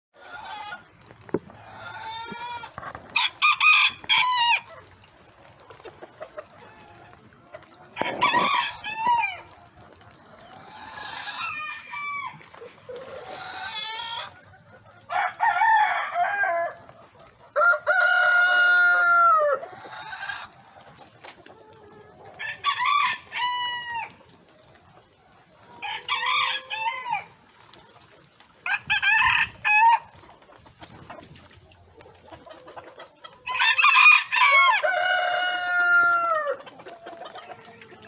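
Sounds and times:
roosters crowing: 1.5s - 4.7s, 7.9s - 9.6s, 10.6s - 14.4s, 15.0s - 16.9s, 17.5s - 20.5s, 22.4s - 24.2s, 25.8s - 27.4s, 28.6s - 30.1s, 33.4s - 36.8s.

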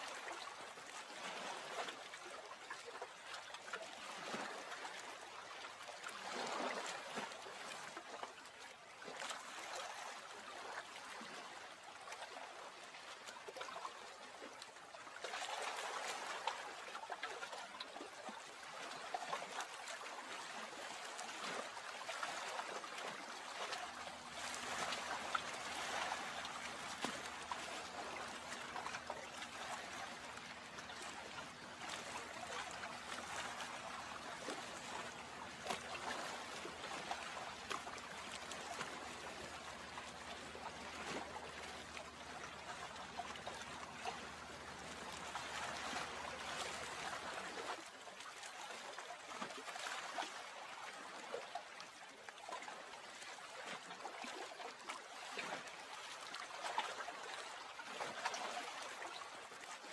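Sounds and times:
small splashes and drips: 0.0s - 59.9s
water trickling: 16.2s - 47.6s
faint low hum: 22.1s - 47.7s.

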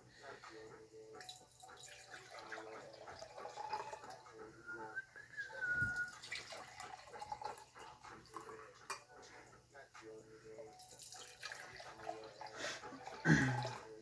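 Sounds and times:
liquid pouring between glass beakers: 1.3s - 4.2s, 6.0s - 9.0s, 10.8s - 14.0s.

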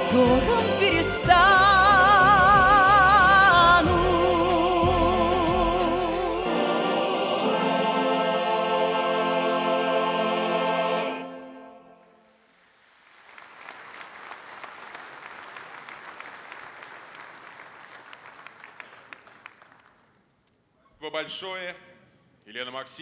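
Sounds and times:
choir and orchestra chord: 0.0s - 12.4s
audience applause: 12.5s - 20.1s.

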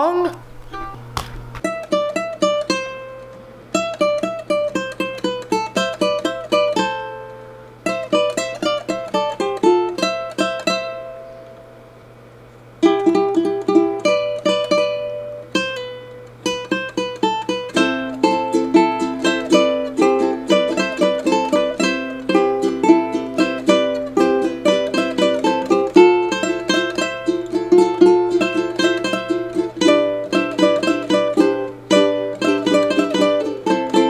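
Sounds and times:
ukuleles playing: 0.6s - 11.9s, 12.8s - 34.0s.

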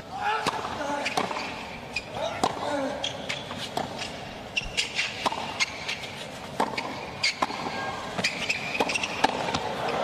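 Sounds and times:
racket striking ball: 0.4s - 1.5s, 4.8s - 6.0s, 6.6s - 9.8s
tennis ball bouncing: 0.4s - 1.6s, 2.3s - 10.0s
shoes squeaking on court: 1.0s - 10.0s.

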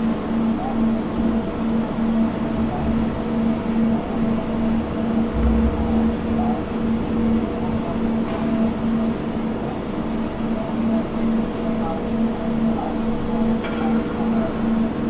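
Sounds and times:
mechanical hum and rumble: 0.0s - 15.0s
low pulsing tone: 1.1s - 9.8s
deep rumble: 2.3s - 9.6s.

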